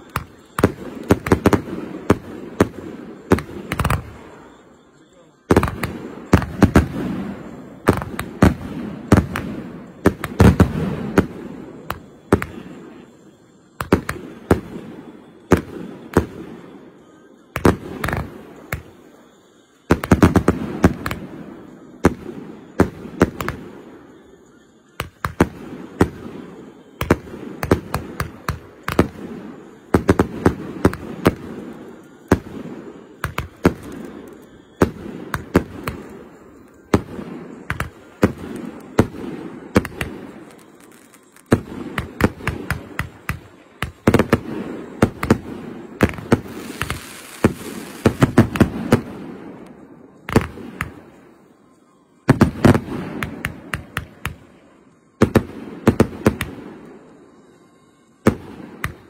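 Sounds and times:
fireworks bangs with echoing rumble: 0.0 - 51.4, 52.2 - 54.6, 55.2 - 57.0, 58.2 - 59.0.

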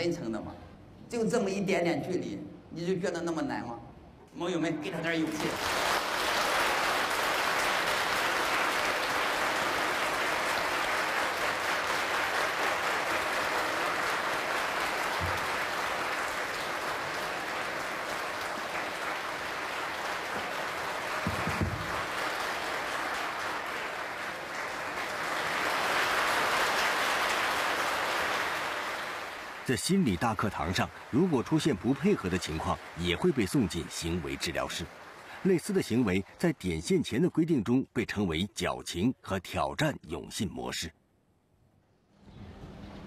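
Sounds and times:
crowd applauding: 5.2 - 38.4.

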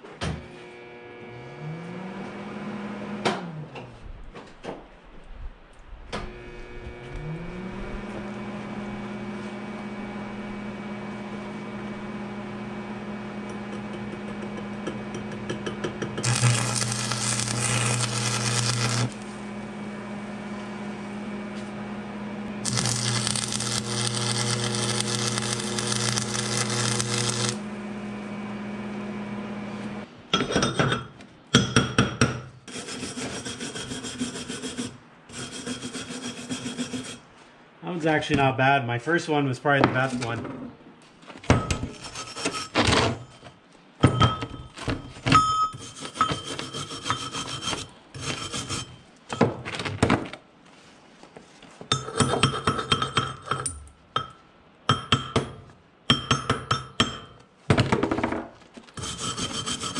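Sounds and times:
arc welder humming: 0.5 - 3.1, 6.2 - 30.1, 59.0 - 59.9
welding arc crackle: 16.2 - 19.4, 22.6 - 27.7
scraping slag off welds: 16.2 - 19.6, 22.6 - 27.7, 45.8 - 49.1, 58.9 - 59.9.

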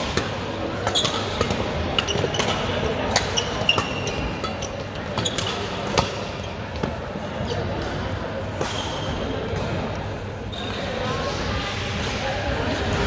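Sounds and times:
racket hitting shuttlecock: 0.0 - 6.9
background chatter: 0.0 - 13.0
shoe squeaking on floor: 0.9 - 1.4, 3.3 - 5.7.

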